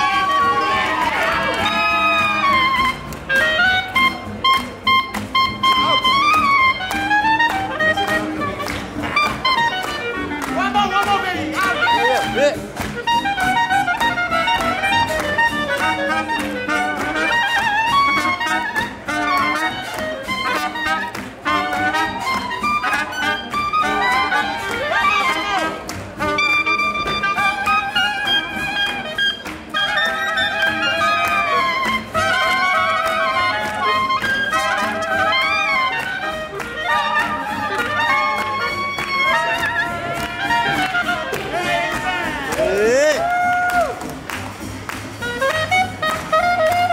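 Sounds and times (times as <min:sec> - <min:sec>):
clarinet: 0:00.0 - 0:46.9
jazz horn section playing swing: 0:00.0 - 0:46.9
steady beat: 0:40.0 - 0:45.2.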